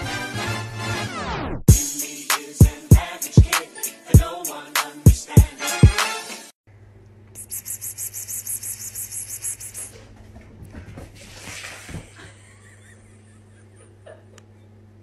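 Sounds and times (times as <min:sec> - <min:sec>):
steady low hum: 0:06.7 - 0:11.2.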